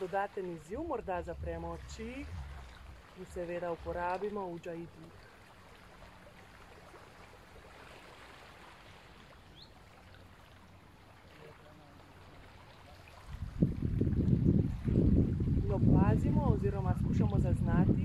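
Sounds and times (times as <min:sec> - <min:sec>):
wind buffeting microphone: 0:00.0 - 0:04.6, 0:13.0 - 0:18.0
rushing water: 0:00.0 - 0:18.0.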